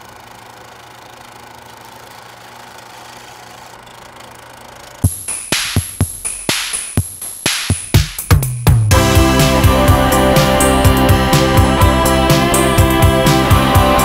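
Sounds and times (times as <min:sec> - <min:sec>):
drum-machine beat: 0:05.0 - 0:14.0.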